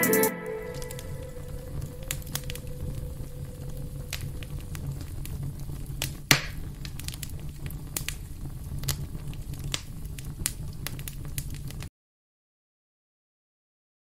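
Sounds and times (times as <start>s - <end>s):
low steady hum: 0.0s - 5.8s
record crackle pops and clicks: 0.8s - 11.9s.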